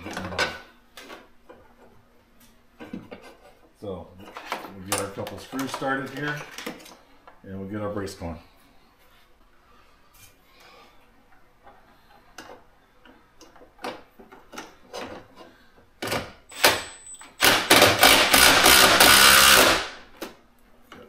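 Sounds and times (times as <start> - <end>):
power driver driving screws: 16.5 - 20.0.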